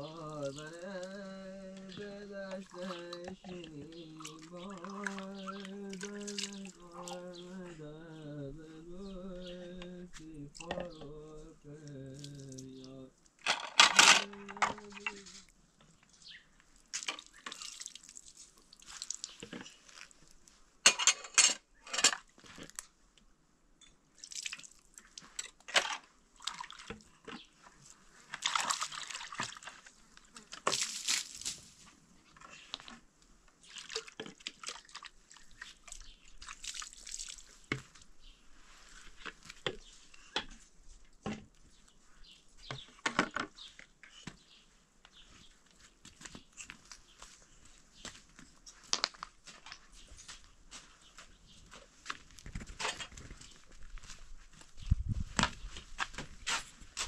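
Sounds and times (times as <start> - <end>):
water splashing and dripping: 0.1 - 7.2, 11.8 - 12.9, 16.8 - 20.1, 24.2 - 25.3, 26.4 - 27.1, 28.3 - 29.9, 30.6 - 31.6, 33.6 - 38.0
dishes clinking: 20.9 - 22.1.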